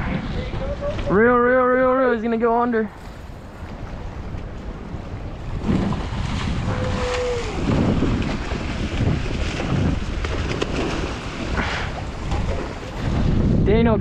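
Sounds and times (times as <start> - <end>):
wind buffeting the microphone: 0.0 - 14.0
ocean surf: 2.5 - 13.6.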